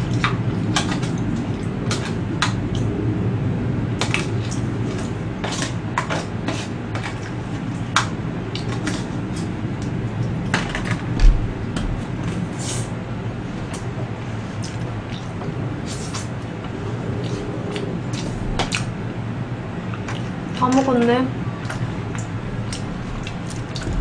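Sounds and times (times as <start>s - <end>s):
steady low hum: 0.0s - 24.0s
dull bump: 11.2s - 12.0s, 23.8s - 24.0s.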